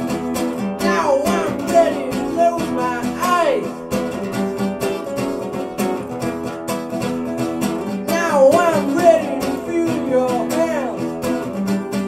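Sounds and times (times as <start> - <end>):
young man singing: 0.0 - 4.3, 7.9 - 11.9
acoustic guitar strumming: 0.0 - 12.0.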